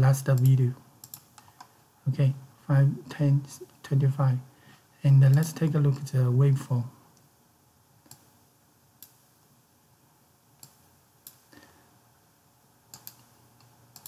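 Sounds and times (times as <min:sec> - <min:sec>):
computer mouse clicks: 0:00.3 - 0:01.7, 0:08.0 - 0:08.3, 0:09.0 - 0:09.2, 0:10.6 - 0:11.5, 0:12.9 - 0:14.0.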